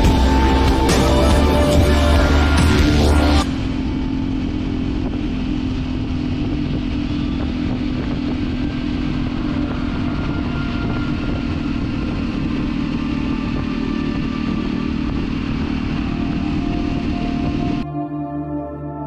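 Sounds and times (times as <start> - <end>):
motorcycle engine running: 0.0 - 17.9
wind rumble on microphone: 3.4 - 17.9.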